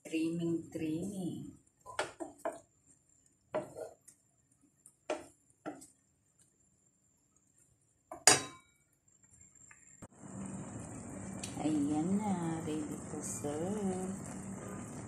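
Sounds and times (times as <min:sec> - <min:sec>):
wooden spoon knocking pan: 0:01.9 - 0:02.7, 0:05.0 - 0:05.9.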